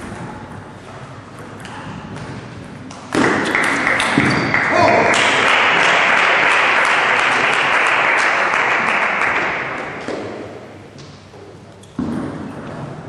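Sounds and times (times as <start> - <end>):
spectators clapping: 3.3 - 10.1.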